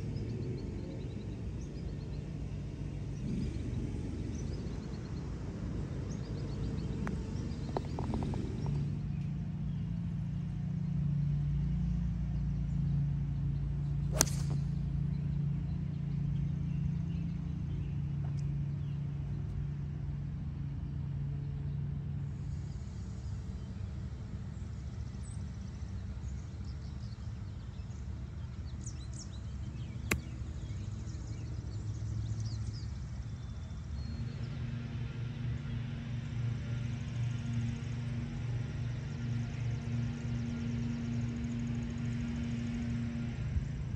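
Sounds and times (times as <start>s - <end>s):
steady low hum: 0.0s - 43.9s
golf club striking ball: 14.1s - 14.8s, 30.0s - 30.6s.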